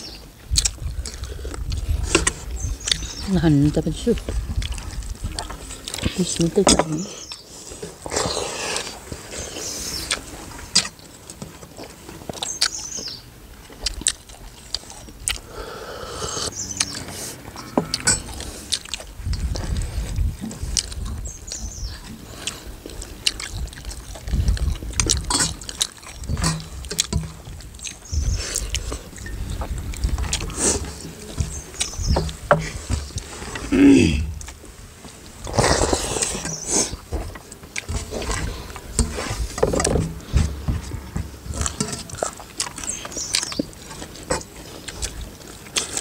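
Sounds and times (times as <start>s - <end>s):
wind rumbling on microphone: 0.0s - 7.0s, 16.4s - 42.3s
chewing and mouth sounds: 0.0s - 15.8s, 16.4s - 46.0s.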